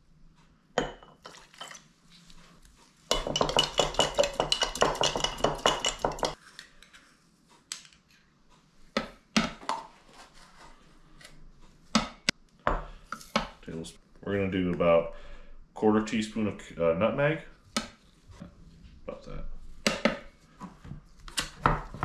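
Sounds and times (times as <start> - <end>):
spoons and dishes clinking: 3.1 - 6.4.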